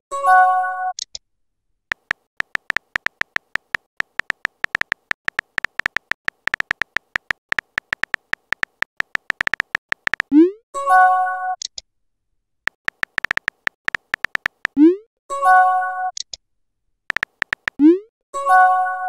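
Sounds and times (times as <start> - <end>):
phone keyboard tap clicks: 1.9 - 10.3, 12.7 - 14.8, 17.1 - 17.8.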